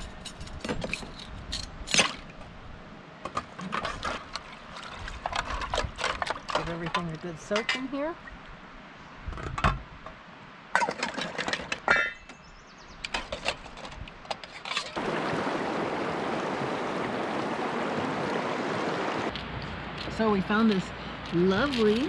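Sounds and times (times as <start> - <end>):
water sloshing in a tub: 3.6 - 8.4
river rushing over rocks: 15.0 - 19.3.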